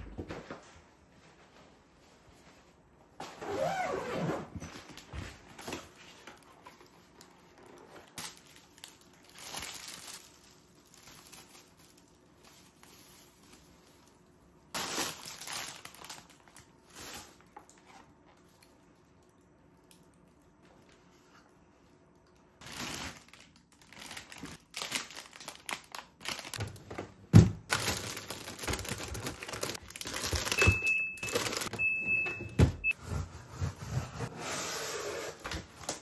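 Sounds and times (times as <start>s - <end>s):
plastic bags crinkling: 6.4s - 13.4s, 14.8s - 17.5s, 22.6s - 27.0s, 27.6s - 31.8s.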